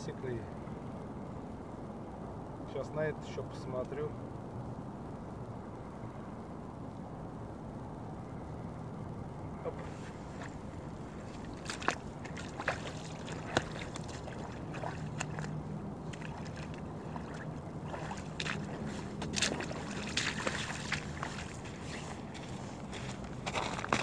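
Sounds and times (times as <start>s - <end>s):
steady low hum: 0.0s - 24.0s
footsteps on sand and stones: 9.8s - 24.0s.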